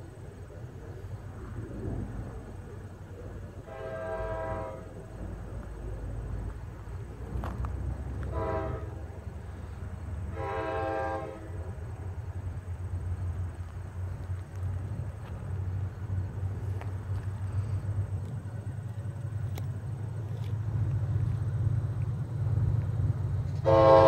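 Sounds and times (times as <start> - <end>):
low rumble of train: 0.0 - 24.0
train air horn blasts: 3.6 - 5.0, 8.2 - 9.1, 10.2 - 11.6, 23.5 - 24.0.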